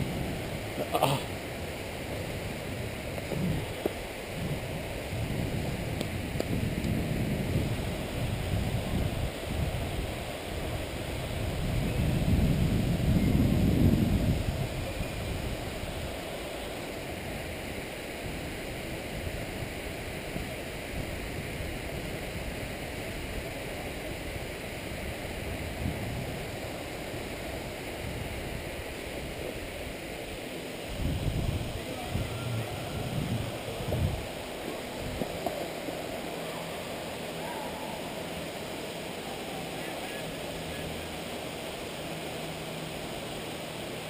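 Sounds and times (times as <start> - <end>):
wind buffeting microphone: 0.0 - 16.4, 17.1 - 30.2, 30.8 - 36.2
steady rushing noise: 0.0 - 44.0.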